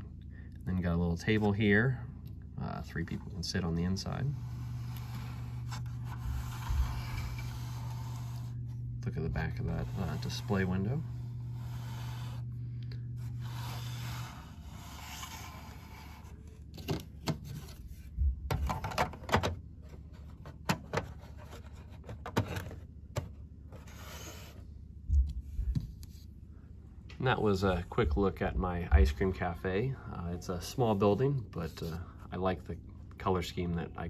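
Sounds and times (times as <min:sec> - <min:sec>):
steady low hum: 0:00.0 - 0:34.0.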